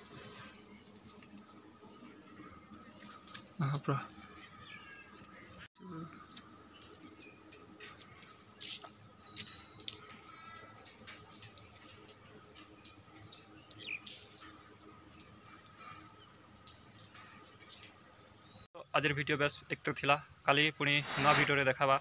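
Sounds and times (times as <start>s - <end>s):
water dripping: 6.1s - 18.7s.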